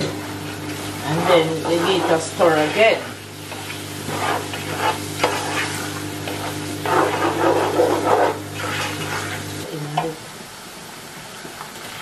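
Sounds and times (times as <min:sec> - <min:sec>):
food sizzling in a pot: 0:00.0 - 0:12.0
spoon scraping a pot: 0:01.1 - 0:09.5.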